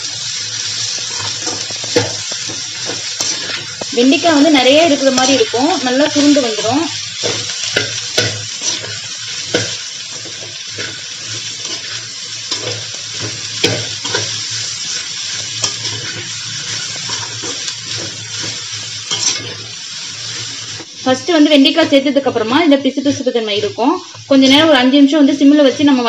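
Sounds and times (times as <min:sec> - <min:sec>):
vegetables sizzling in oil: 0:00.0 - 0:26.0
metal spatula scraping pan: 0:01.1 - 0:11.0, 0:15.6 - 0:19.7.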